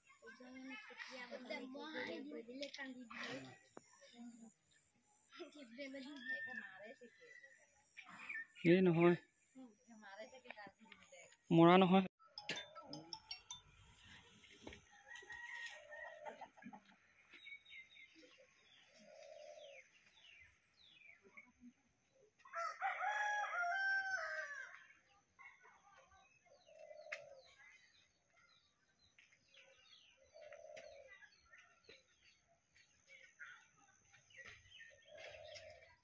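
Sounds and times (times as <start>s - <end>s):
small birds chirping: 12.9s - 22.7s, 24.6s - 36.0s
rooster crowing: 15.1s - 16.5s, 22.6s - 24.8s.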